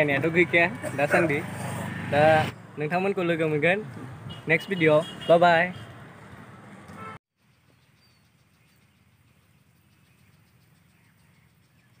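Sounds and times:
faint outdoor street background: 0:00.0 - 0:12.0
faint bird chirps: 0:07.4 - 0:12.0.

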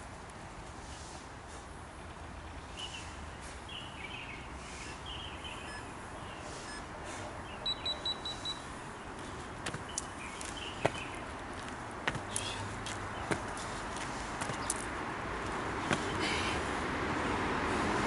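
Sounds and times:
short high beeps: 0:07.6 - 0:08.7.

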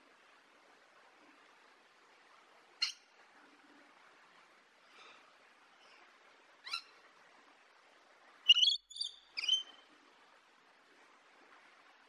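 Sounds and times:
lorikeet calling: 0:08.5 - 0:09.8.

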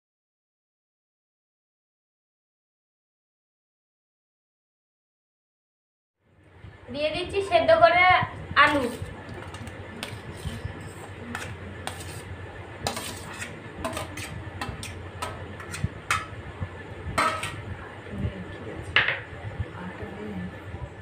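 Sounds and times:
steel bowl clinking on metal plate: 0:12.9 - 0:16.3, 0:17.2 - 0:17.6.

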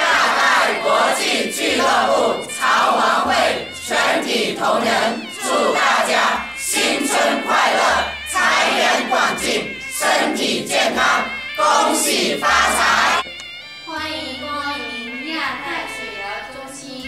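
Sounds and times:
crowd chanting in unison: 0:00.0 - 0:13.2.

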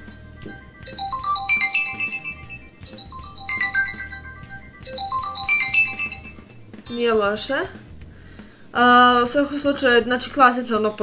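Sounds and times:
phone ringtone melody: 0:00.0 - 0:07.7.

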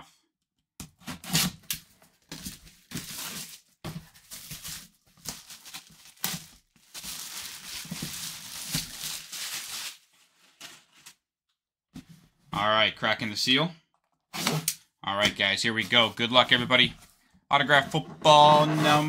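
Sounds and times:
plastic shrink wrap crinkling: 0:02.4 - 0:11.2.

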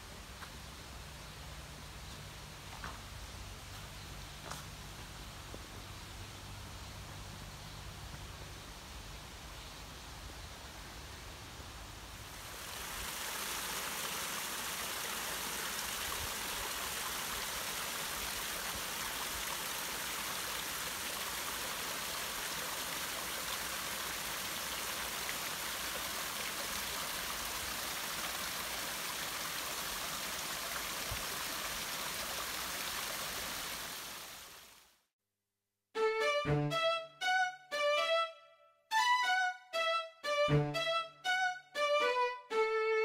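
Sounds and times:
water splashing over rocks: 0:12.6 - 0:34.6.

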